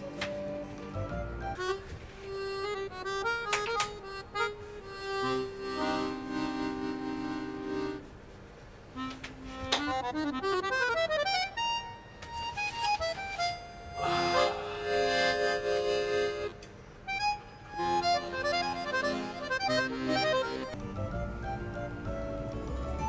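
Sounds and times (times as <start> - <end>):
instrumental background music: 0.0 - 8.1, 9.0 - 23.0.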